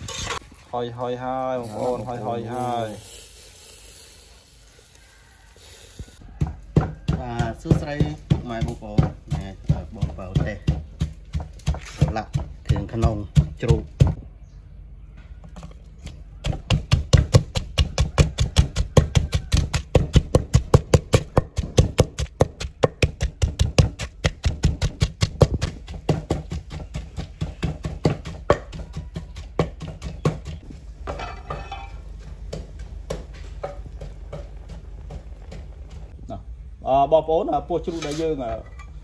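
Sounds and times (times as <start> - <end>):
wooden pestle pounding in mortar: 6.2 - 14.2, 16.4 - 31.6, 32.3 - 36.2.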